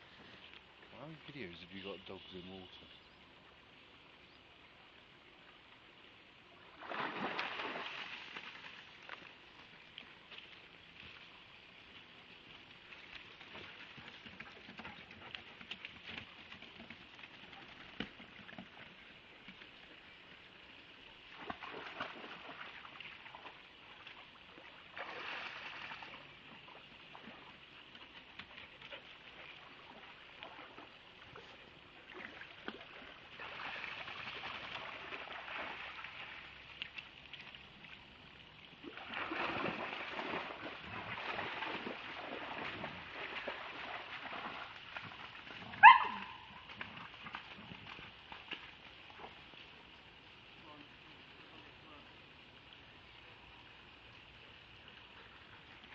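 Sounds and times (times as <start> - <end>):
dogs splashing in water: 6.7 - 9.0, 21.3 - 37.4, 38.8 - 49.6.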